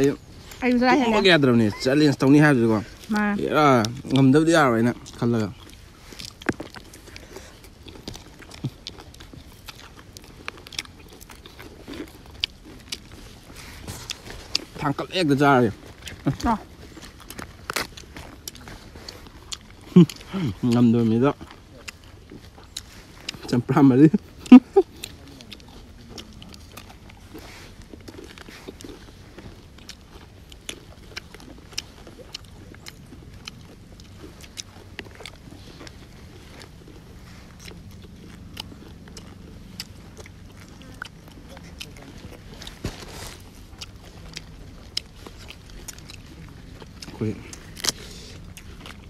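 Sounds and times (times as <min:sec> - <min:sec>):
close chewing of crunchy salad: 0:00.0 - 0:49.0
mouth clicks and smacks: 0:15.8 - 0:49.0.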